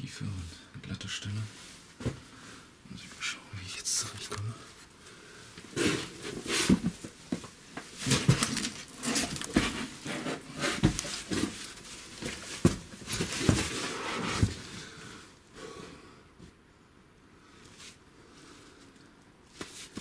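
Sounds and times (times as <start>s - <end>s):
hard breathing: 2.1s - 2.8s, 4.5s - 6.2s, 13.8s - 16.4s.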